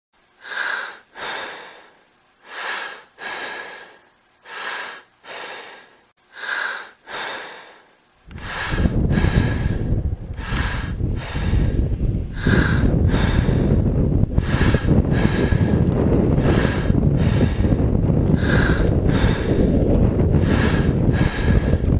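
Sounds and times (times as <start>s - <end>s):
person breathing hard: 0.3s - 21.9s
wind rushing on microphone: 8.3s - 21.9s.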